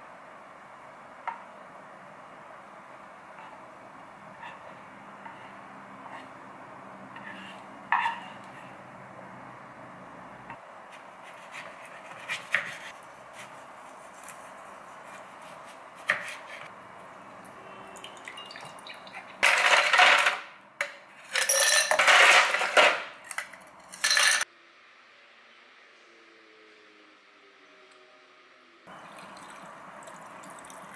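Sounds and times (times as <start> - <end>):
ice cubes clattering into glass jar: 21.3 - 23.0.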